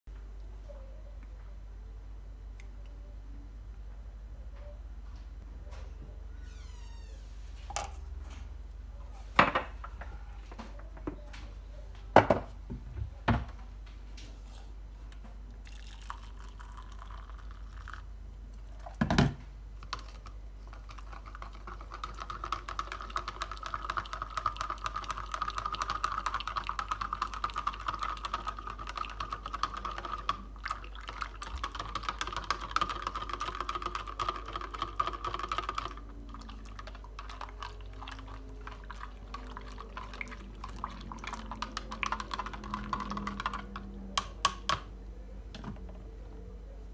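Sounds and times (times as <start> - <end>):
spoon stirring in plastic jug: 19.8 - 44.9.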